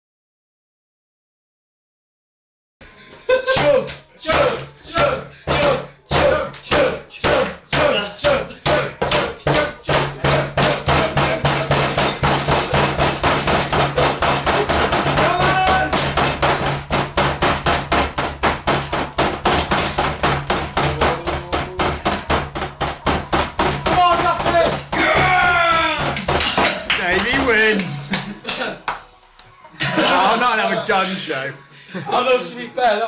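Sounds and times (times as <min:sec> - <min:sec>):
fast rhythmic banging: 0:03.5 - 0:29.1
voices shouting: 0:23.9 - 0:26.2.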